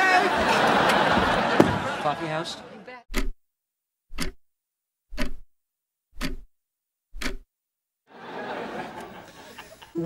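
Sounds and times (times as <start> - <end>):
clock-like timer ticks: 3.1 - 3.4, 4.1 - 4.4, 5.1 - 5.5, 6.1 - 6.5, 7.1 - 7.5.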